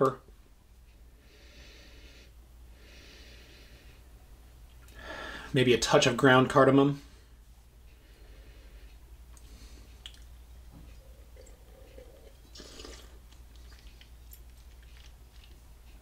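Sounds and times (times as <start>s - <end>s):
steady low hum: 0.0s - 16.0s
small mouth clicks: 9.3s - 10.3s
wet mouth sounds sipping wine: 11.0s - 15.6s.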